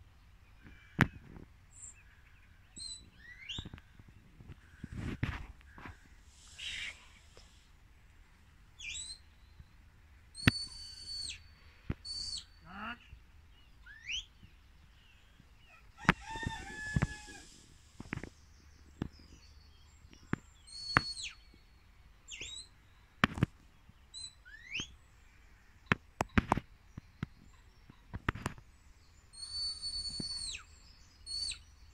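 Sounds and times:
shrill whistles: 0:10.4 - 0:11.4, 0:29.4 - 0:30.7.

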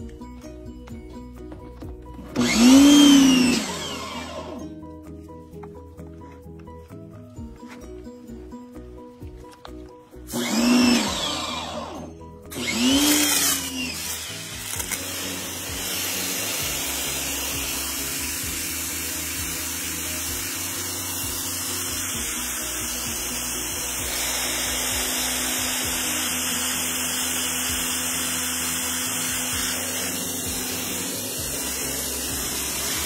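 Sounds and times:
pressure washer motor: 0:02.2 - 0:04.7, 0:10.3 - 0:33.0
water jet hissing on concrete: 0:14.0 - 0:27.0, 0:28.6 - 0:33.0.

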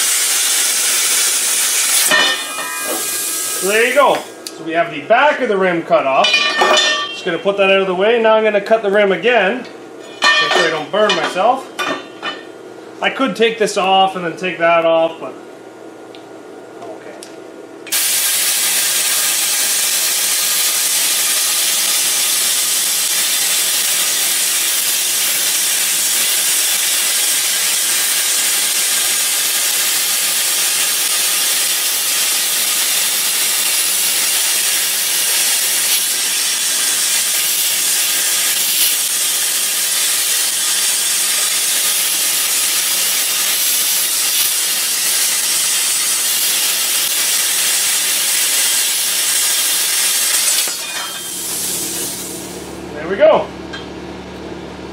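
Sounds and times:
plasma cutter hissing: 0:00.0 - 0:04.5, 0:17.9 - 0:52.8.

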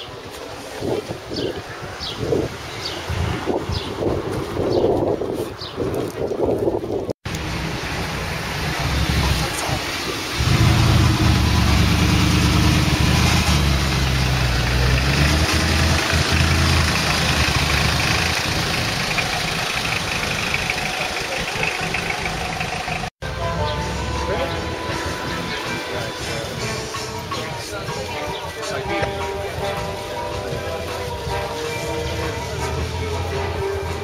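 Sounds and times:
car engine revving deep drone: 0:10.4 - 0:23.1.

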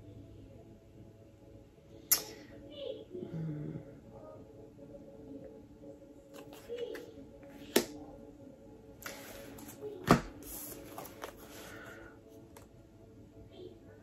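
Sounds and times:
soft background music: 0:00.0 - 0:14.0
card slaps: 0:07.7 - 0:08.0
cards rustling and clicking: 0:09.0 - 0:11.8.

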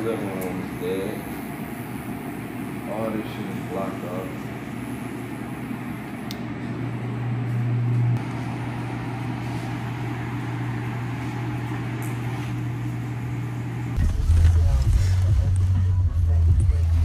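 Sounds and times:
electric hair clipper buzzing: 0:00.0 - 0:07.6.

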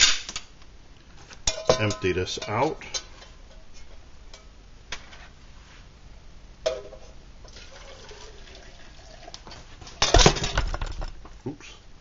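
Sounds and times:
metal pot clinking: 0:01.4 - 0:04.5
water pouring out of pot: 0:07.4 - 0:09.7.

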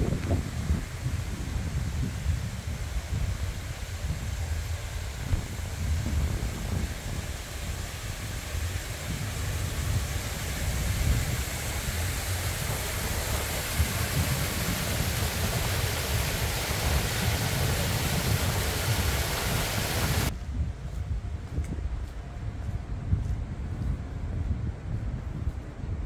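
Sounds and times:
flowing water hiss: 0:00.0 - 0:20.3
wind rumbling on microphone: 0:00.0 - 0:26.0.

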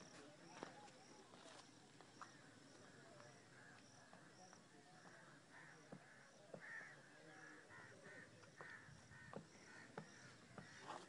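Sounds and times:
distant crows cawing: 0:02.2 - 0:11.0.

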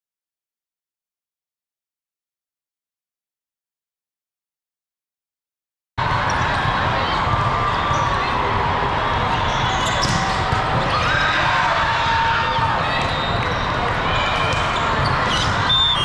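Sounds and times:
many voices in echoing hall: 0:06.0 - 0:16.0
shoe squeaks on court: 0:09.5 - 0:10.4, 0:14.6 - 0:16.0.

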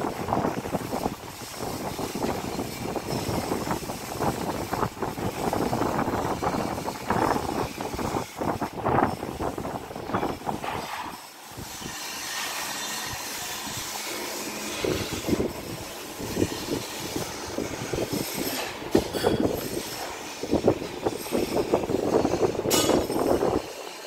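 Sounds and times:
metal-on-metal knocks: 0:22.7 - 0:23.3.

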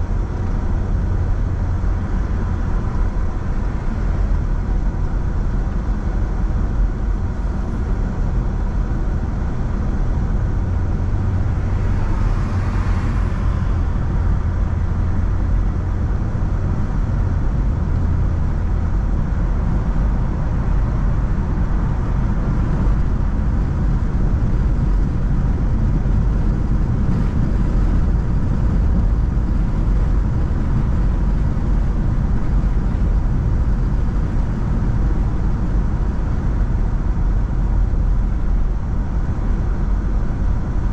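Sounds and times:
road and engine rumble: 0:00.0 - 0:40.9.

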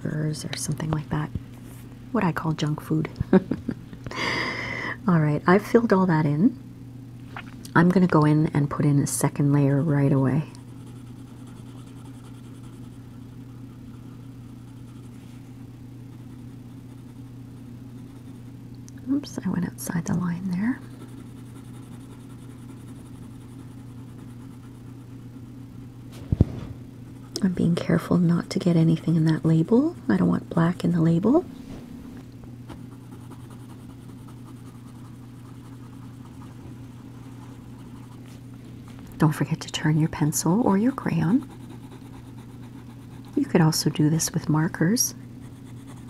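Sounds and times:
steady low hum: 0:00.0 - 0:46.0
pencil rubbing on paper: 0:10.7 - 0:15.4, 0:20.9 - 0:25.2, 0:32.8 - 0:38.4, 0:40.8 - 0:43.6.

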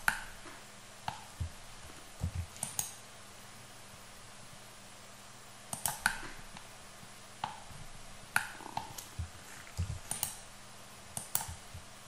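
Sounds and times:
faint steady hum: 0:00.0 - 0:12.0
mouse and keyboard clicking: 0:02.2 - 0:03.0, 0:05.7 - 0:06.2, 0:08.4 - 0:10.4, 0:11.2 - 0:11.8.

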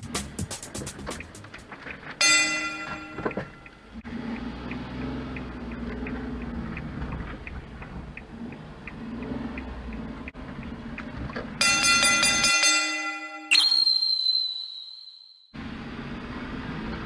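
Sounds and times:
van engine droning: 0:00.0 - 0:12.2, 0:15.6 - 0:17.0
turn signal ticking: 0:00.0 - 0:12.5.

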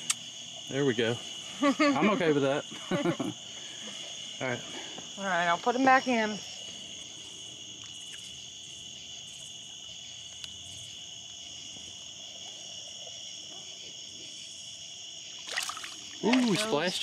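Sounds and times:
crickets chirping: 0:00.0 - 0:17.0
fish splashing in water: 0:15.4 - 0:17.0.

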